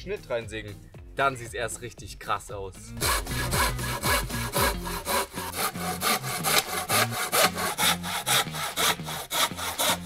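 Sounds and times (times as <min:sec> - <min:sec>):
hand saw cutting wood: 0:03.0 - 0:10.0.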